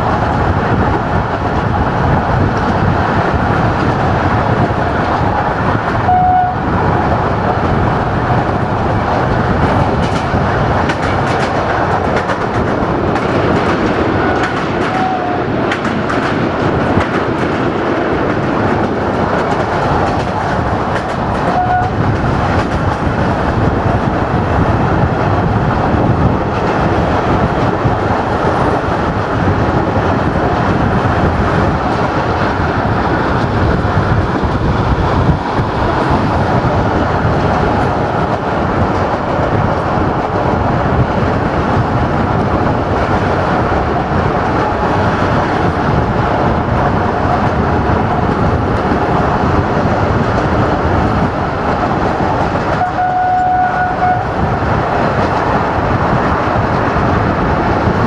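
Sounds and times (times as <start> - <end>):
rushing air: 0.0 - 58.0
train wheels rumbling on rail: 0.0 - 58.0
train horn: 6.0 - 6.6, 14.3 - 15.5, 21.5 - 22.0, 52.8 - 54.3.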